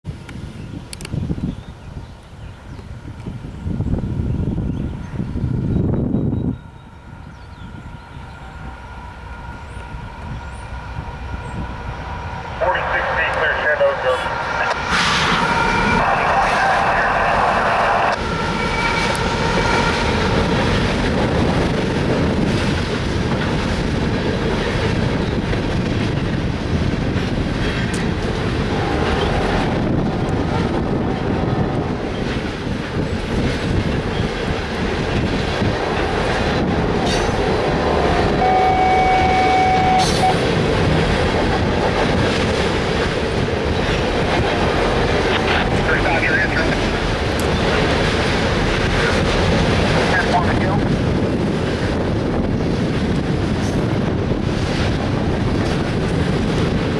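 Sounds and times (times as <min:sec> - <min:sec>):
freight cars rumbling over bridge: 0:00.1 - 0:56.9
high squeal: 0:14.4 - 0:20.2
train horn: 0:37.8 - 0:40.4.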